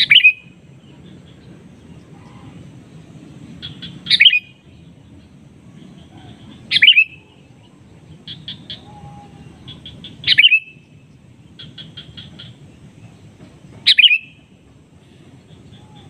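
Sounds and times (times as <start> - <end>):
bulbul calling song: 0.0 - 16.0
steady low rumble: 0.0 - 16.0.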